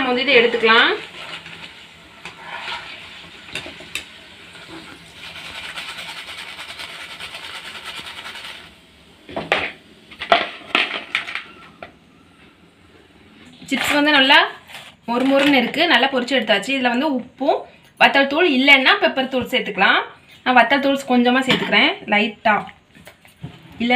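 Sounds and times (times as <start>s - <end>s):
oil sizzling around frying chips: 0.0s - 12.3s.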